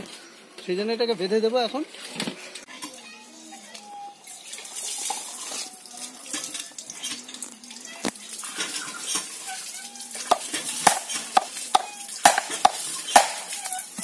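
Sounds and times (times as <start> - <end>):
knife blade knocking bamboo: 10.3 - 13.5.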